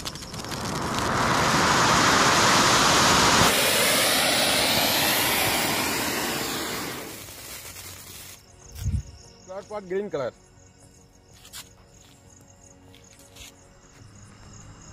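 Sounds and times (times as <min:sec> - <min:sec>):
firework fountain hissing: 0:00.0 - 0:08.4.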